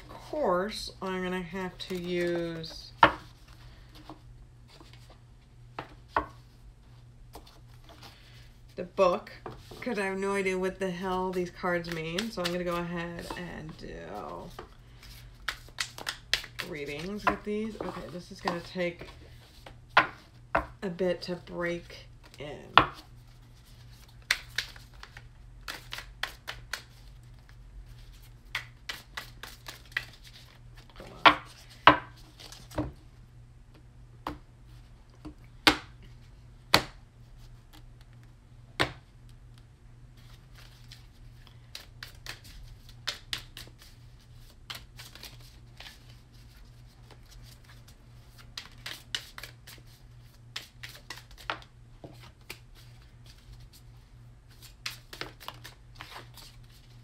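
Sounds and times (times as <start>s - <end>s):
cards being shuffled: 10.9s - 20.4s, 23.0s - 32.8s, 40.2s - 53.9s, 54.5s - 57.0s.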